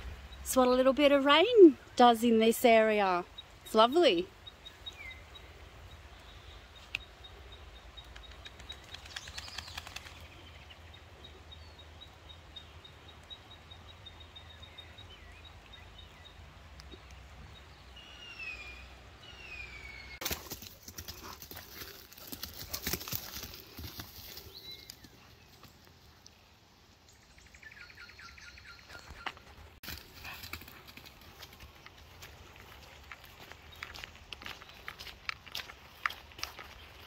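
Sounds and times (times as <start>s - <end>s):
dog running through wet grass: 20.2s - 24.9s.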